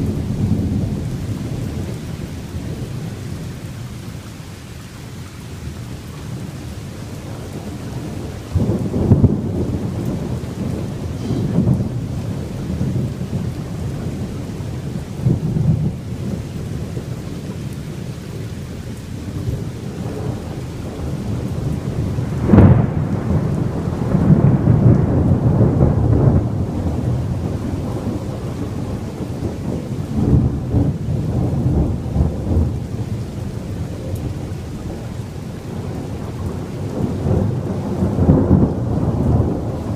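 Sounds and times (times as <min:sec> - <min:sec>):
steady rain: 0:00.0 - 0:39.9
thunder rumbling: 0:00.0 - 0:39.9
sharp thunderclap: 0:07.4 - 0:17.0, 0:19.4 - 0:39.9.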